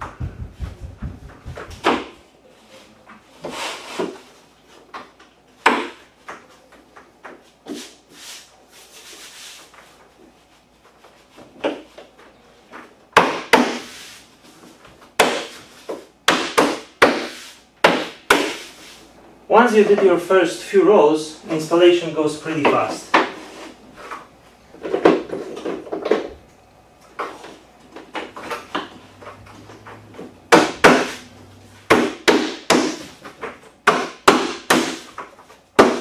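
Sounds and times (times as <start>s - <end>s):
boards knocking and clicking: 0.0s - 2.2s, 27.2s - 31.2s, 31.9s - 36.0s
laminate planks sliding and rubbing: 7.7s - 11.4s, 13.8s - 14.8s.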